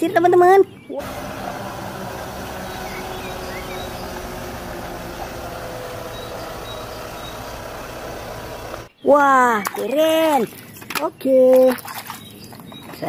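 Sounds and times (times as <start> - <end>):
truck diesel engine running: 1.0 - 8.9.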